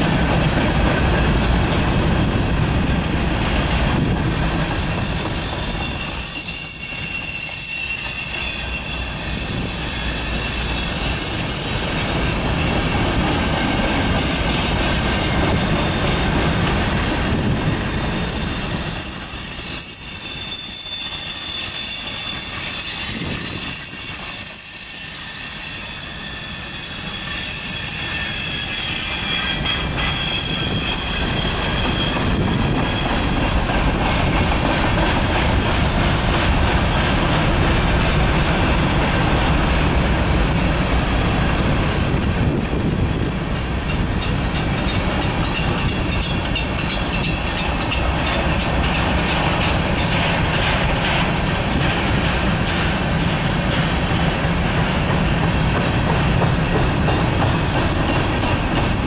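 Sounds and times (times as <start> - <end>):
train wheels rumbling on rail: 0.0 - 59.0
high-pitched wheel squeal: 4.2 - 13.1, 16.7 - 33.6.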